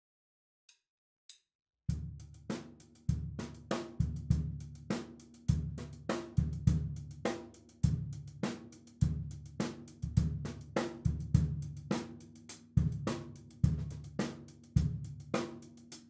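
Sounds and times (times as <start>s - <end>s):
drum kit playing a beat: 1.9s - 16.0s.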